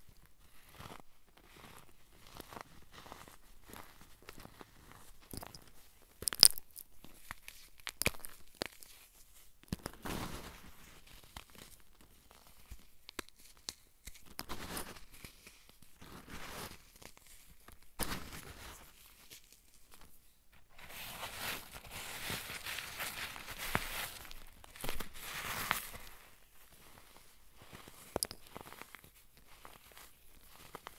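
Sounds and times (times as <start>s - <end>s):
fingers crushing chalky block: 5.3s - 9.0s.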